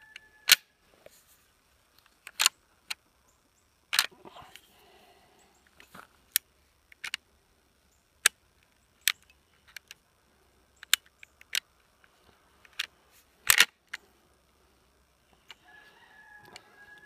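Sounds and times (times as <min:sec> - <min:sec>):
rifle action clicking: 0:12.7 - 0:14.0.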